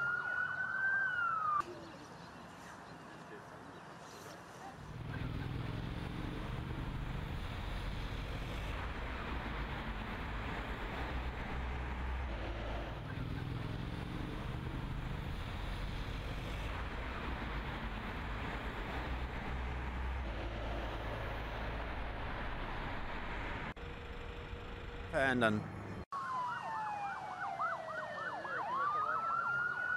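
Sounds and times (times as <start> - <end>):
cars and vans driving past: 4.8 - 26.1.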